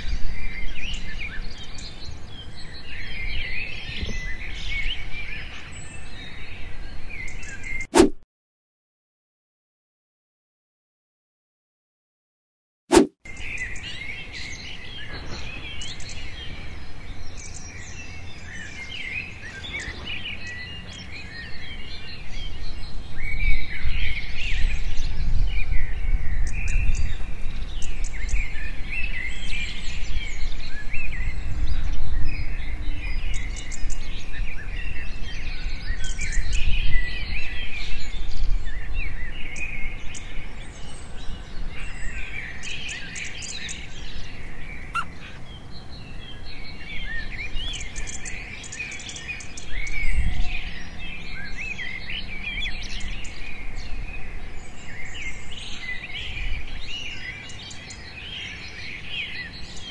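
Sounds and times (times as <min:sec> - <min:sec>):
birds chirping and calling: 0:13.4 - 0:23.0, 0:26.4 - 0:37.3, 0:41.8 - 0:53.6.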